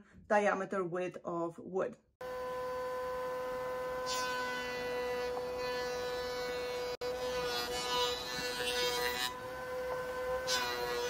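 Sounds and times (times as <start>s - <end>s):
router high whine: 2.2s - 11.0s.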